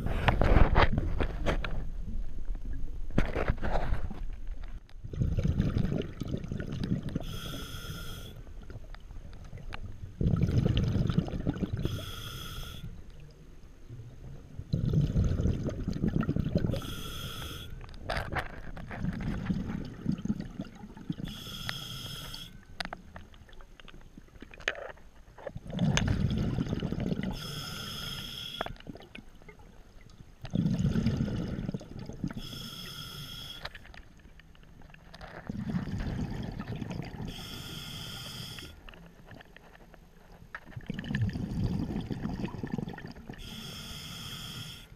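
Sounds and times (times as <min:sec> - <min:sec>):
scuba regulator exhale bubbles: 0:05.0 - 0:08.7, 0:10.2 - 0:12.8, 0:14.7 - 0:17.6, 0:25.6 - 0:29.2, 0:30.4 - 0:33.6, 0:35.5 - 0:38.7, 0:40.9 - 0:44.8
regulator inhale hiss: 0:07.2 - 0:08.5, 0:11.8 - 0:13.0, 0:16.7 - 0:17.8, 0:21.2 - 0:22.6, 0:27.4 - 0:28.8, 0:32.4 - 0:33.8, 0:37.3 - 0:38.8, 0:43.4 - 0:44.9.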